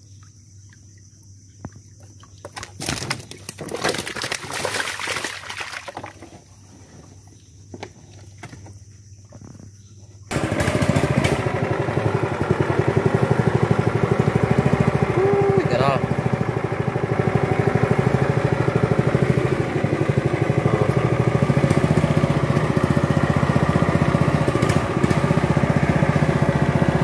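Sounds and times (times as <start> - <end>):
water splashing: 2.0 - 6.3
small engine running: 10.3 - 27.0.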